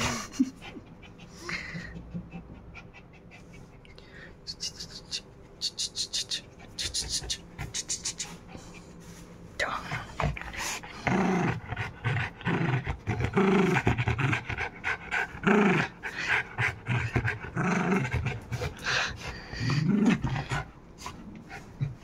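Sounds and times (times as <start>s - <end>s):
dog panting: 0.4s - 4.0s, 11.6s - 22.0s.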